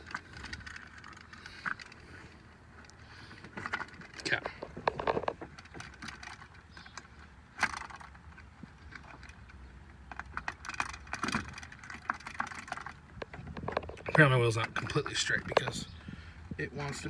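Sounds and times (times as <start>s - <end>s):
light clicks and knocks of parts: 0.0s - 17.0s.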